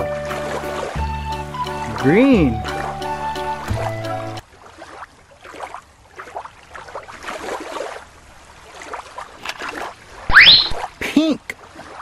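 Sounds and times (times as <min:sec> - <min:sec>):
stream trickling over rocks: 0:04.4 - 0:12.0.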